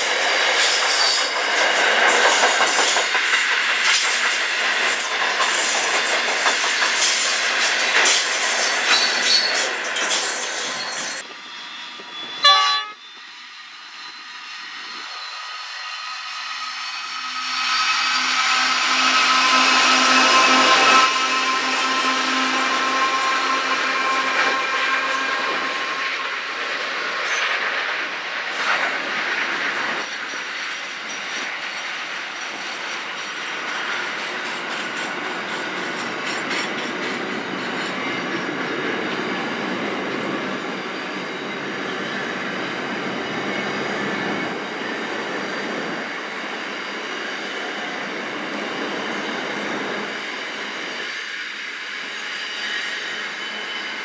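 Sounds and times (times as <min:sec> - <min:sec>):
train wheels rumbling on rails: 0:00.0 - 0:54.0
high-pitched wheel squeal: 0:03.9 - 0:28.9, 0:37.5 - 0:54.0.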